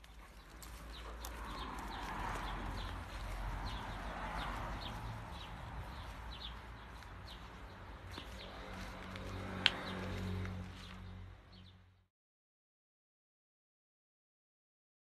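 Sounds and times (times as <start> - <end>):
small birds chirping: 0.0 - 10.1.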